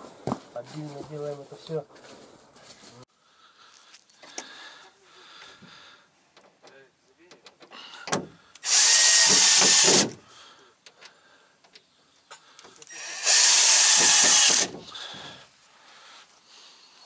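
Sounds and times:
power drill running: 8.6s - 10.2s, 12.9s - 14.8s.

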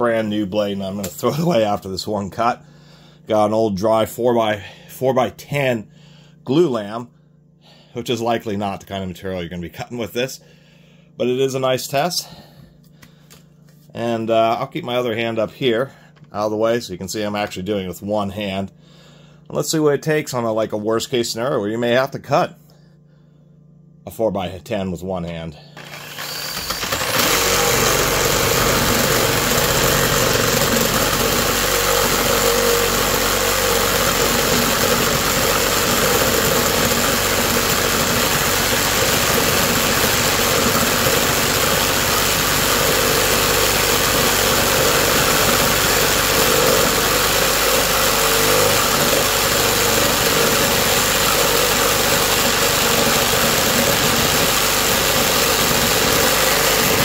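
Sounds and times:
reciprocating saw cutting wood: 25.8s - 57.0s.

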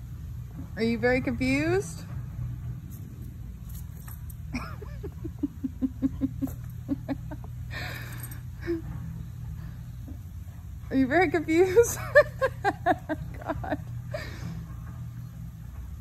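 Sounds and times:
steady low hum: 0.0s - 16.0s
woman chuckling: 4.5s - 7.9s, 11.9s - 13.9s.

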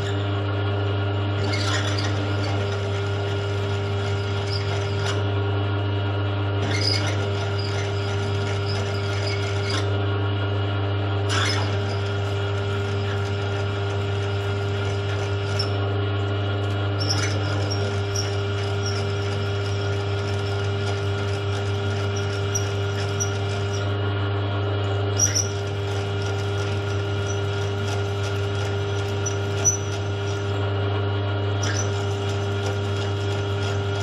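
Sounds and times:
milling machine motor humming: 0.0s - 34.0s
drill scraping into metal: 1.4s - 5.2s, 6.6s - 9.9s, 11.3s - 15.8s, 17.0s - 23.9s, 25.2s - 30.6s, 31.6s - 34.0s.

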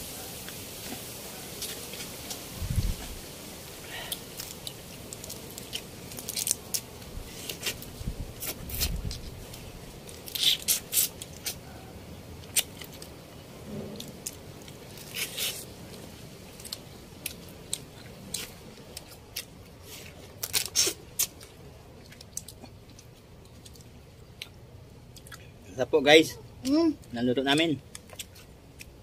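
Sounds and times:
crab shells cracking: 4.0s - 7.8s, 12.4s - 13.2s
chewing: 16.5s - 25.5s.

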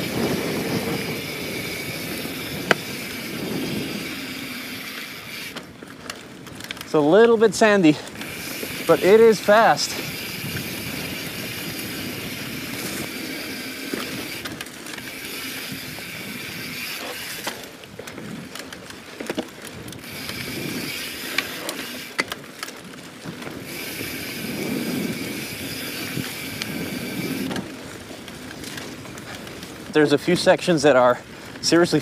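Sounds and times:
freehub ratcheting clicks: 0.0s - 7.5s, 8.1s - 22.8s, 23.4s - 27.8s
bike rattles and knocks: 0.0s - 32.0s
bike tyres on sandy dirt: 0.0s - 32.0s.

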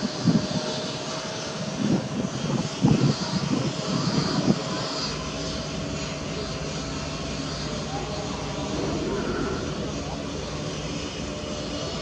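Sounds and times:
motor hum with whine: 0.0s - 12.0s
low rumbling surges: 5.2s - 12.0s.

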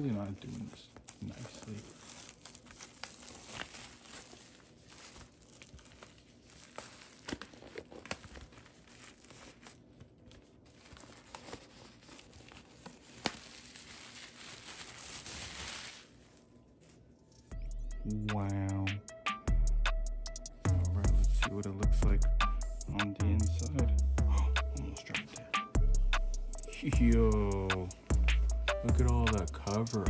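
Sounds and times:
plastic shrink-wrap crinkling: 0.0s - 17.5s.

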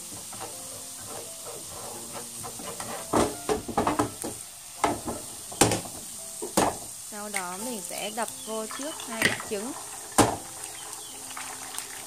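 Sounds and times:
chopsticks scraping a pan: 0.0s - 5.4s
garlic sizzling in hot oil: 0.0s - 12.0s.

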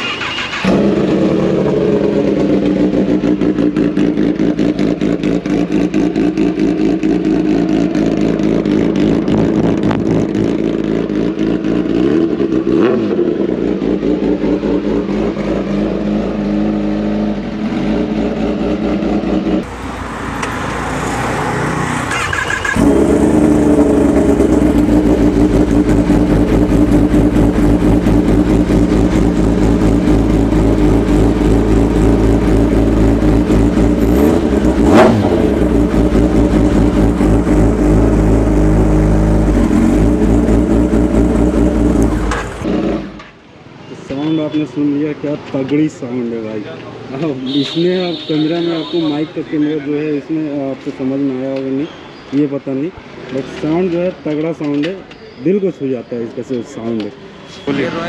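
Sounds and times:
motorcycle engine idling and revving: 0.0s - 43.5s.

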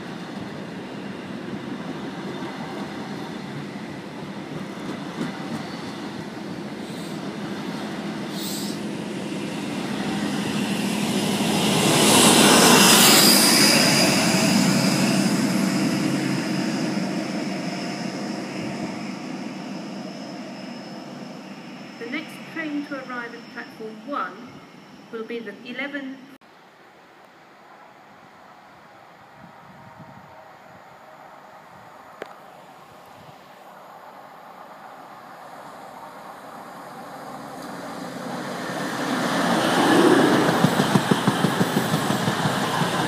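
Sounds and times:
diesel train passing: 0.0s - 43.0s.

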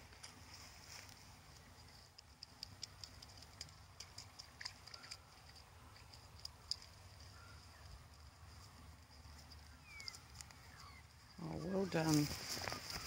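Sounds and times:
dog rustling through wet grass: 11.4s - 13.0s.

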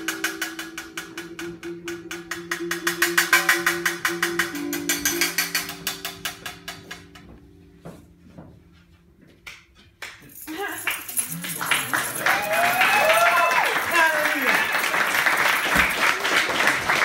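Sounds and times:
jingling hand percussion: 0.0s - 7.1s, 10.2s - 16.3s.

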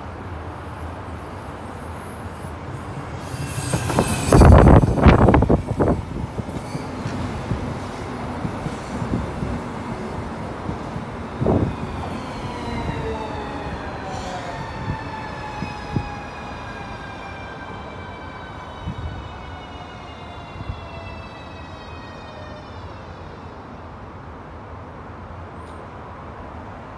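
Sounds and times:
wheels rumbling on rails: 2.7s - 14.0s.

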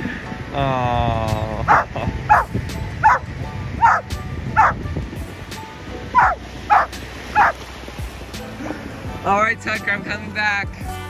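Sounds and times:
dog barking: 1.7s - 3.2s, 3.8s - 4.8s, 6.2s - 7.6s.

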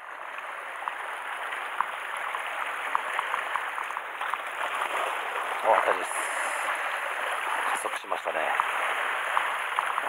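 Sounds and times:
sea water washing against rocks: 0.2s - 10.0s.

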